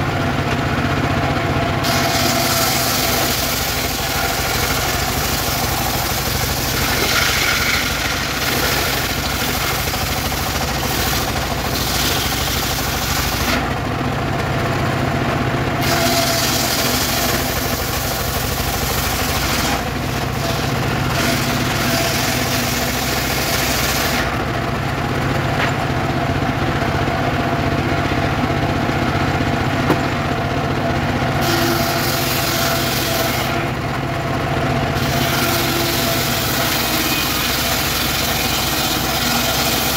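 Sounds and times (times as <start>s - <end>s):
saw engine running: 0.0s - 39.9s
saw blade cutting wood: 1.8s - 13.8s, 15.8s - 24.4s, 31.4s - 33.8s, 34.9s - 39.9s.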